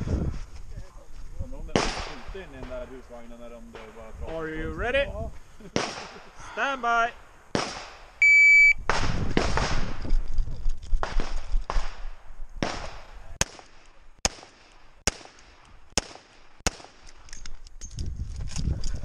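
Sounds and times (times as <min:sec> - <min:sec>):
shot timer beep: 0:08.2 - 0:08.8.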